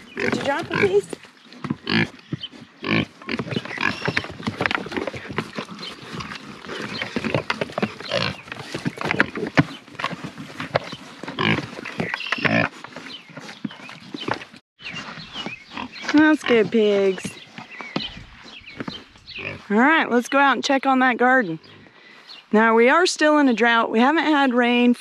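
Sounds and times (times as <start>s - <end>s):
pigs grunting and squealing: 0.0s - 12.9s
pigs chewing and smacking: 0.0s - 19.6s.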